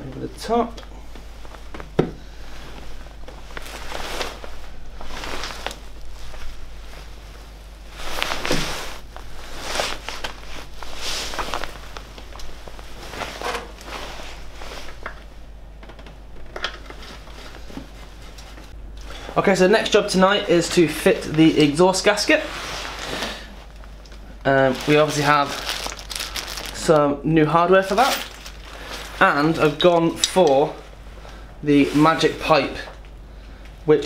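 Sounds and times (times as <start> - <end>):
padded jacket rustling: 1.0 - 15.6, 19.9 - 23.8, 24.5 - 26.9, 27.7 - 32.9.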